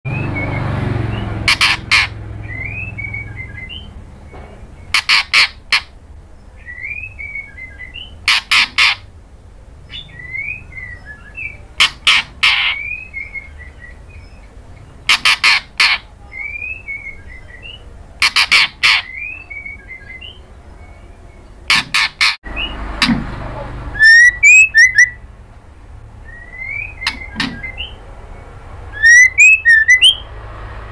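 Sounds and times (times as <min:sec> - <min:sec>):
soft twittering chirps: 0:09.8 - 0:11.8, 0:23.6 - 0:25.3, 0:26.2 - 0:30.4.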